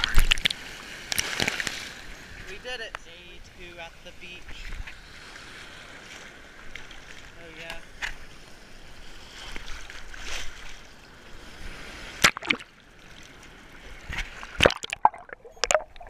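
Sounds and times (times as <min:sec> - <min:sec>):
water slapping camera: 0:00.0 - 0:01.8, 0:12.2 - 0:12.7, 0:14.0 - 0:16.0
sea water sloshing: 0:04.5 - 0:16.0.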